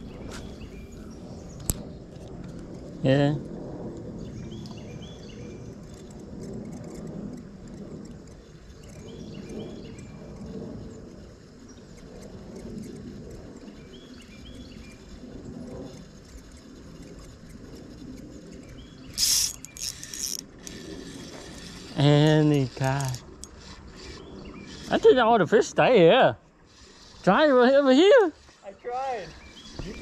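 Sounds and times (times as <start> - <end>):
fishing reel spinning rasp: 11.8 - 25.5, 26.7 - 30.0
creek ambience: 15.9 - 30.0.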